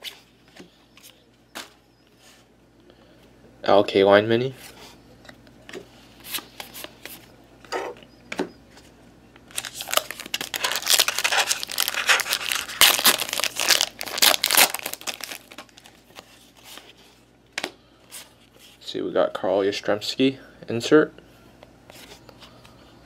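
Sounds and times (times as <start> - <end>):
card pack wrapper tearing and crinkling: 9.5 - 16.8.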